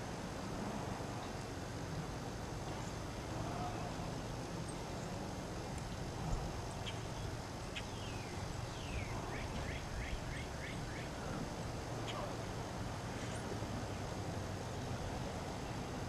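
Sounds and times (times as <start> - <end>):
songbird singing: 2.6 - 16.0.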